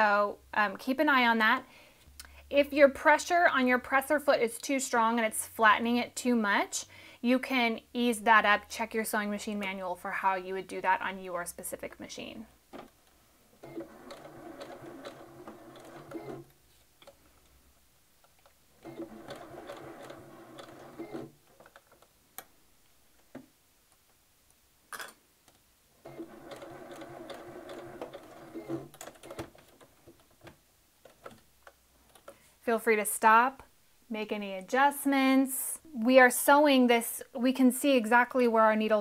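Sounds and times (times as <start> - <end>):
sewing machine stitching: 13.6 - 17.2, 18.8 - 22.0, 26.0 - 31.4.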